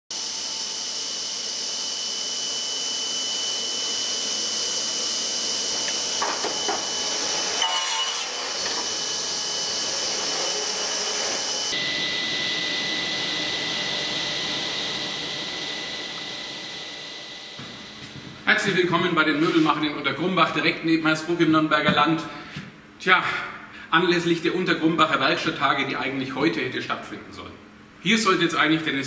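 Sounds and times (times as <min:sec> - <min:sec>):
workshop machinery hiss and whine: 0:00.1 - 0:29.0
knocks and clatters: 0:05.8 - 0:06.9.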